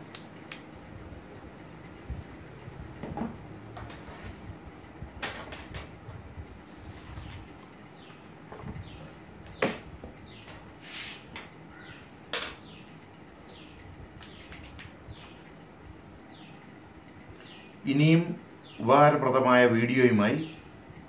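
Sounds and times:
faint bird chirps: 11.7s - 15.4s.

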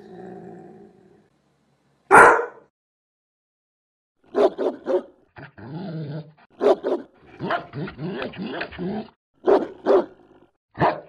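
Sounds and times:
dog barking: 2.1s - 2.7s, 4.3s - 5.2s, 6.6s - 7.8s, 9.4s - 10.2s, 10.8s - 11.0s.

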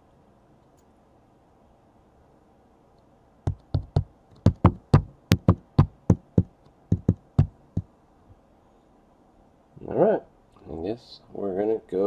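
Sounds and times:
hand knocking on hard surface: 3.5s - 7.9s.

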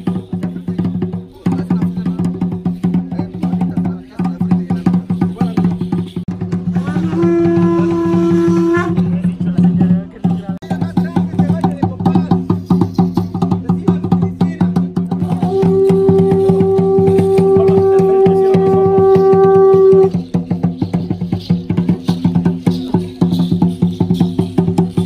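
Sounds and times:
fast drumming on large drum: 0.0s - 25.0s
conch shell trumpet note: 6.7s - 9.2s, 15.2s - 20.2s.

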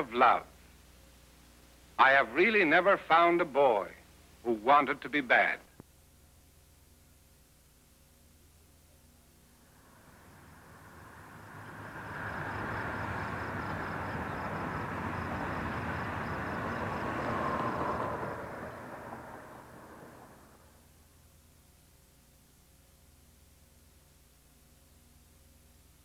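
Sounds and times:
outdoor rushing noise: 9.6s - 20.8s.

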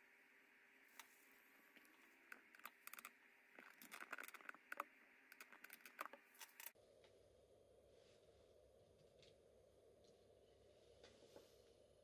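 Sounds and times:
low steady hum: 0.0s - 12.0s
quiet hiss: 0.0s - 12.0s
faint small clicks and ticks: 0.9s - 7.2s.

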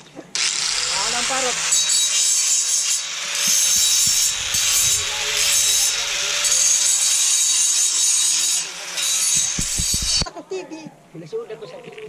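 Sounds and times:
angle grinder motor whine: 0.4s - 7.6s
grinder disc grinding metal: 0.4s - 10.2s.

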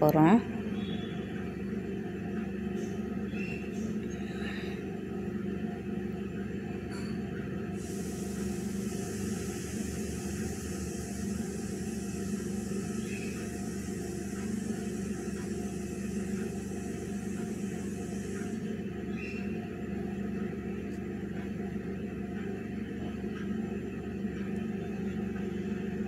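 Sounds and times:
low hum: 6.4s - 26.0s
food frying hiss: 7.8s - 19.5s.

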